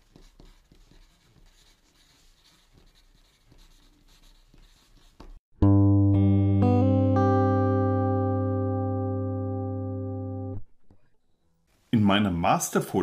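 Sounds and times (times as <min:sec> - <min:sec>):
pencil scratching on paper: 0:00.0 - 0:05.4.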